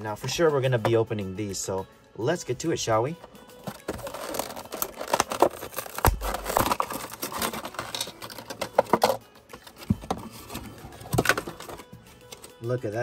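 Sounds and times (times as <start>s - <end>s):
plastic packaging crinkling: 3.6s - 9.2s.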